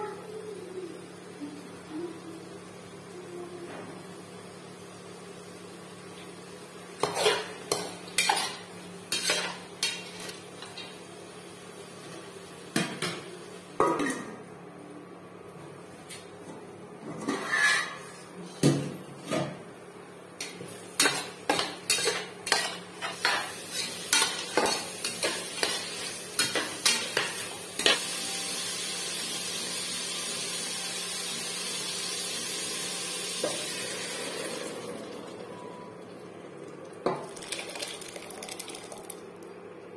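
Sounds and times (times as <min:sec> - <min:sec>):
frying sizzling hiss: 0:04.6 - 0:13.7, 0:20.4 - 0:34.9
spatula knocking and scraping metal: 0:21.0 - 0:28.0.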